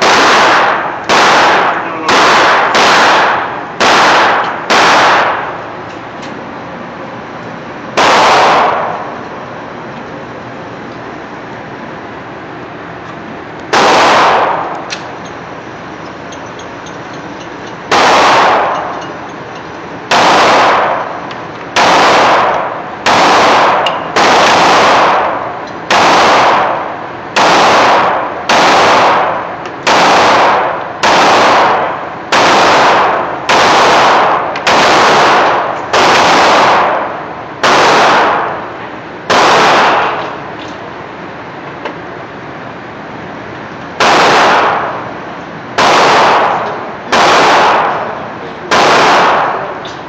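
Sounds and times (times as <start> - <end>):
pistol shots echoing indoors: 0.0 - 5.8, 7.9 - 9.2, 13.7 - 15.2, 17.9 - 19.1, 20.1 - 40.4, 44.0 - 45.1, 45.7 - 49.8.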